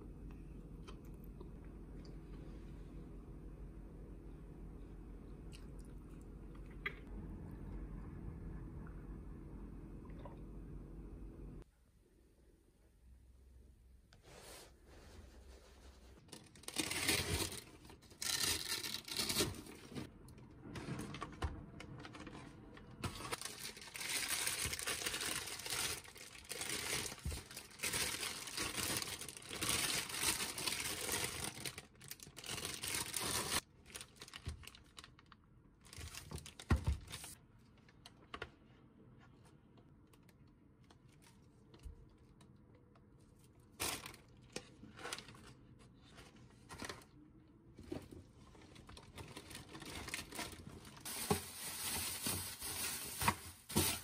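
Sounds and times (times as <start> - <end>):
plastic packaging rustling: 16.1 - 38.1, 43.4 - 47.2, 47.8 - 54.0.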